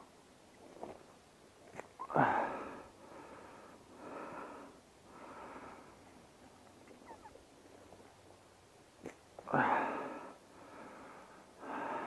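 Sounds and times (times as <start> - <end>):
person breathing hard: 2.1 - 6.1, 9.5 - 12.0.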